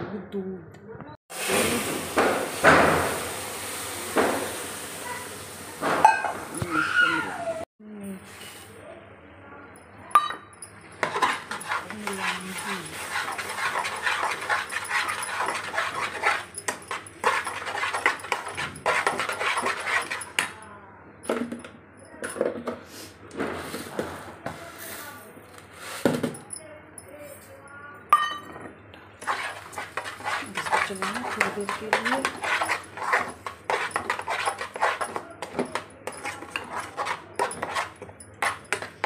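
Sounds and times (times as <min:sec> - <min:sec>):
spoon scraping pan: 0:11.0 - 0:20.6, 0:29.2 - 0:39.0.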